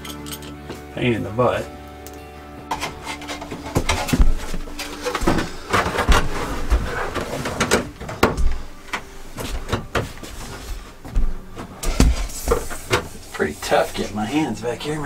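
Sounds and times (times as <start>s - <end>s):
plastic knocks and thumps: 3.8s - 8.6s.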